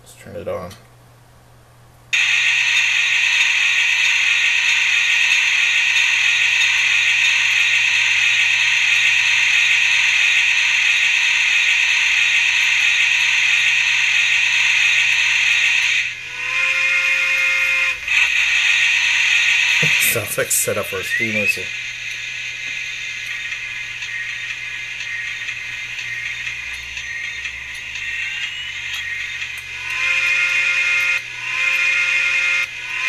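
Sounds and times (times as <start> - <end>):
steady steam hiss: 2.2 - 30.0
two-note steam whistle: 15.1 - 18.0, 29.8 - 33.0.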